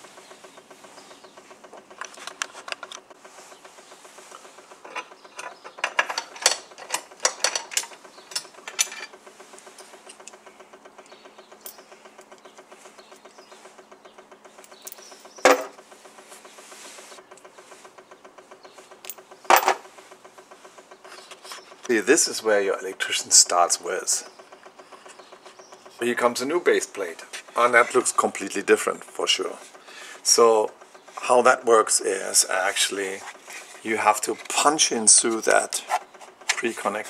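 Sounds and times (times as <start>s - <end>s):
faint steady hum: 0.0s - 37.0s
screwdriver clicking and rattling: 1.8s - 3.0s, 4.8s - 10.4s.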